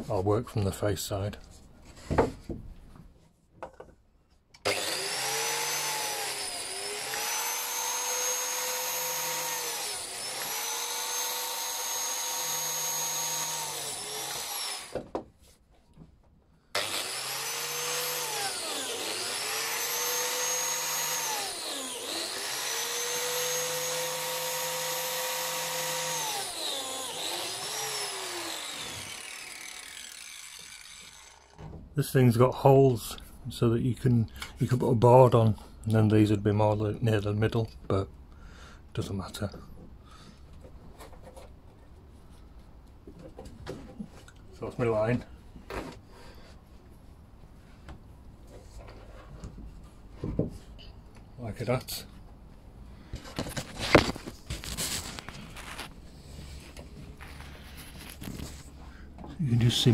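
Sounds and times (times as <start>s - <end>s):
biscuit jointer whining: 4.6s - 15.1s, 16.7s - 31.6s.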